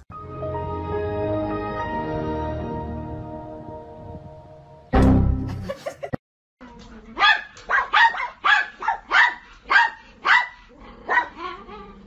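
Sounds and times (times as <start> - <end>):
dog barking: 7.2 - 11.4.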